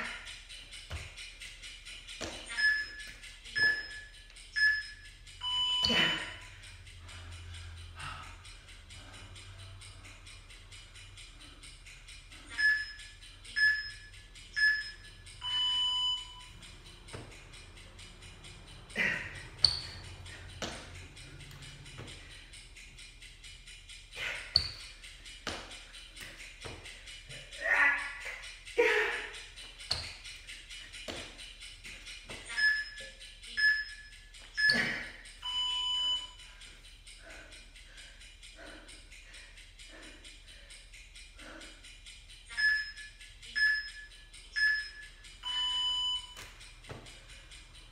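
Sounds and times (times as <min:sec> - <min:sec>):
timer beeps: 0:00.0 - 0:07.9, 0:08.6 - 0:26.9, 0:29.2 - 0:36.9, 0:42.1 - 0:46.8
long timer beep: 0:02.5 - 0:06.4, 0:12.5 - 0:16.6, 0:32.5 - 0:36.4, 0:42.5 - 0:46.4.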